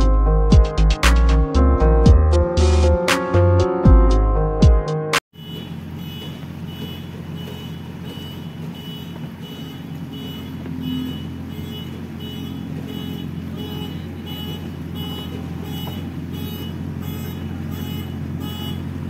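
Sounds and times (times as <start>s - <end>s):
reversing alarm beeping: 5.4s - 18.8s
diesel engine running: 5.4s - 19.0s.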